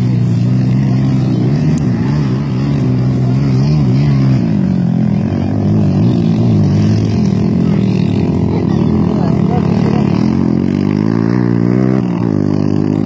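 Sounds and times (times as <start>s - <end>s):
quad bike engine revving: 0.0s - 13.0s.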